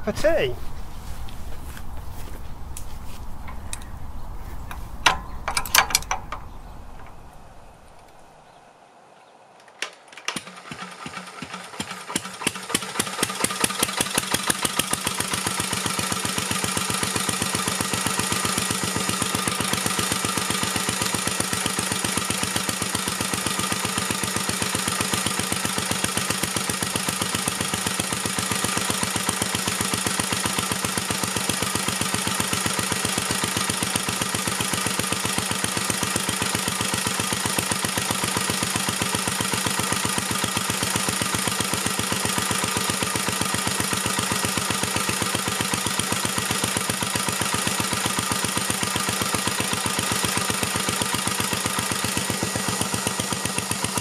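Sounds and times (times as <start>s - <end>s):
engine knocks: 1.5s - 8.4s
stationary engine running: 10.7s - 54.0s.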